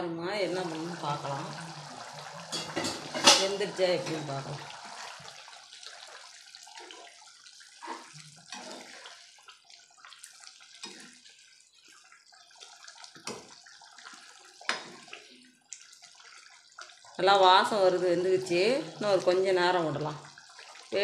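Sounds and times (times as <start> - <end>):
curry bubbling and simmering: 0.4 - 21.0
ladle stirring sloshing: 0.5 - 17.2.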